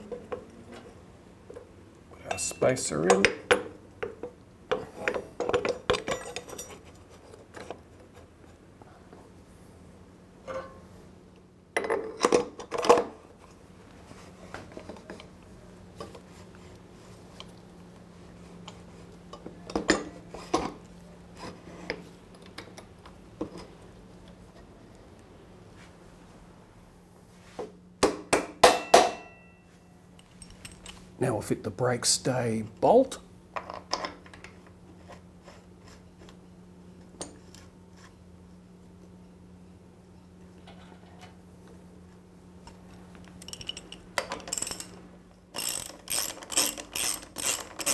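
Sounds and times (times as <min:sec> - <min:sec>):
steady low hum: 0:00.0 - 0:47.9
metal tools clinking and clanking: 0:02.2 - 0:02.8, 0:05.4 - 0:06.9, 0:43.4 - 0:45.0, 0:45.6 - 0:47.9.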